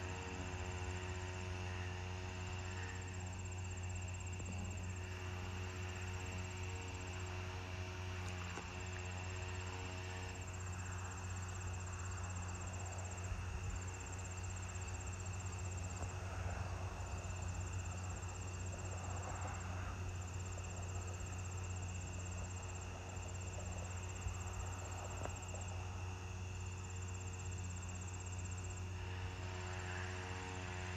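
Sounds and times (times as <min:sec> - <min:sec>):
steady low hum: 0:00.0 - 0:30.9
crickets trilling: 0:08.0 - 0:30.8.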